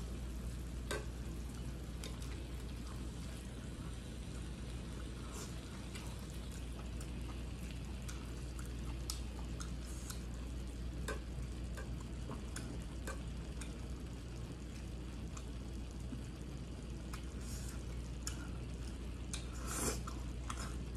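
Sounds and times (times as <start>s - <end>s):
steady low hum: 0.0s - 20.9s
chopsticks clicking on a plate: 0.8s - 1.2s, 11.0s - 13.8s
moist chewing: 4.4s - 13.8s.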